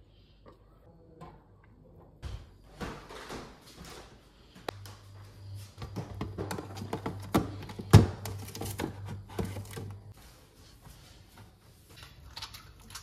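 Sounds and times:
refrigerator hum: 0.1s - 13.0s
plastic containers clicking and clattering: 5.9s - 10.1s.

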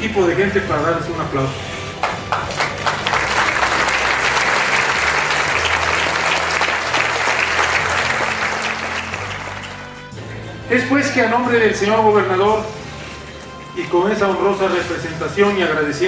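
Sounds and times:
audience applauding: 2.0s - 10.1s.

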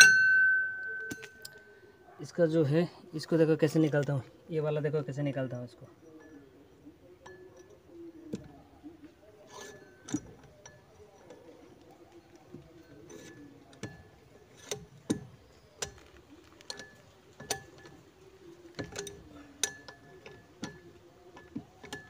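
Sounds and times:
metallic clinks with short ring: 0.0s - 1.7s.

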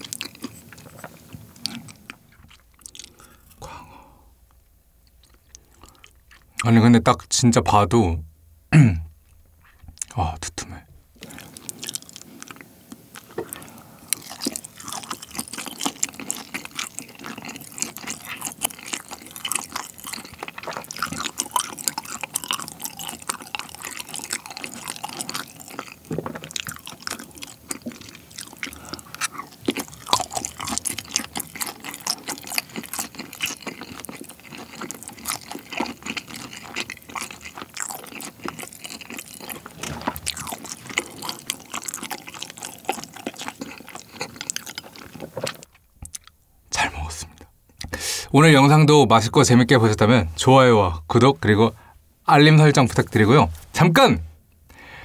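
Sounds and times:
close chewing with mouth clicks: 0.0s - 3.9s, 4.5s - 6.7s, 11.2s - 46.4s.

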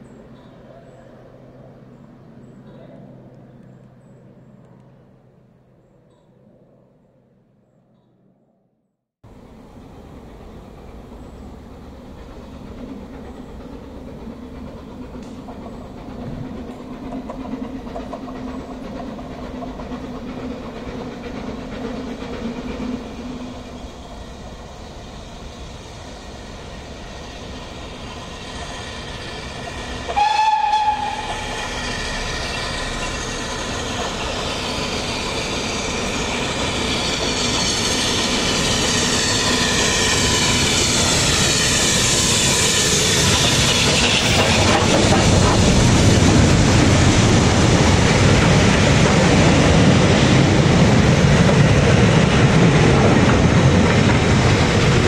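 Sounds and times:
steam locomotive running: 9.3s - 55.0s
steam whistle blast: 30.1s - 32.3s.

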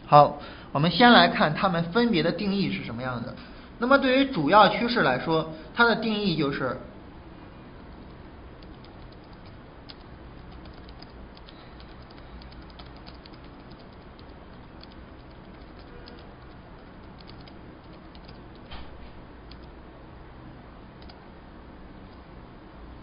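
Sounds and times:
low hum and hiss: 0.0s - 23.0s
keyboard keystroke clicks: 8.6s - 18.7s, 19.5s - 19.7s, 21.0s - 21.2s.

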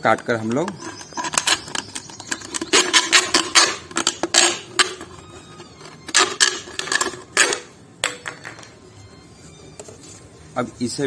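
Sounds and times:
knife cutting plastic bottle: 0.2s - 7.7s.

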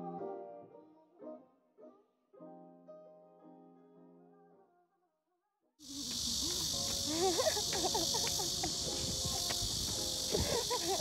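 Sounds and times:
faint piano music: 0.0s - 4.8s, 5.9s - 11.0s
high-pitched insect chorus: 5.8s - 11.0s.

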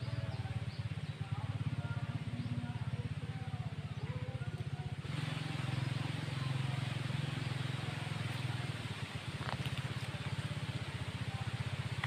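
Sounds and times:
faint music: 0.0s - 12.0s
low pulsing motor drone: 0.0s - 12.0s
hiss: 5.1s - 12.0s.

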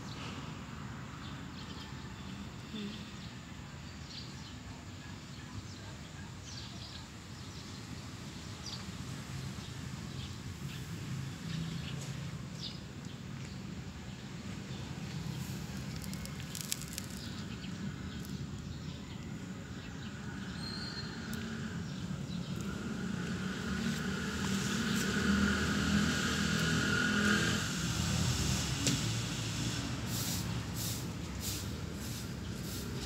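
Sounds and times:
motor vehicle passing: 21.4s - 33.0s.

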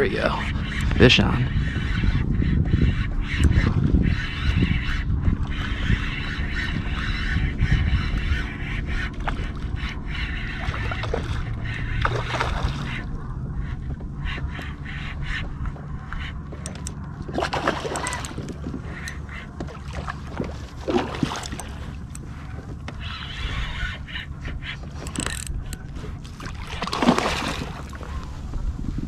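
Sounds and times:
fish thrashing and splashing: 10.6s - 13.0s, 16.7s - 23.5s, 24.8s - 28.1s.

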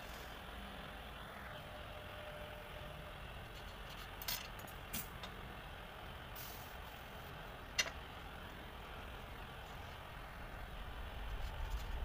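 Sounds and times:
soldering iron hiss: 6.3s - 7.3s
low rumble: 10.1s - 12.0s.

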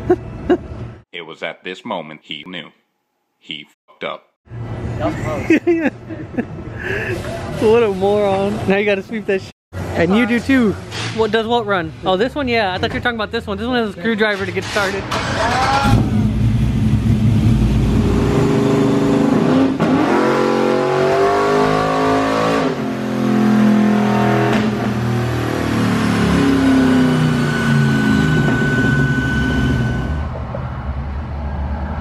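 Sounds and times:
pickup engine revving on dyno: 15.9s - 30.1s
thin high whine: 26.8s - 30.3s.

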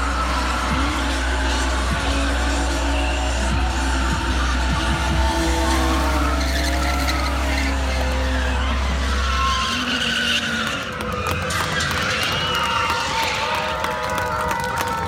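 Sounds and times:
car engine revving: 0.0s - 14.6s
tyres skidding: 0.0s - 15.0s.

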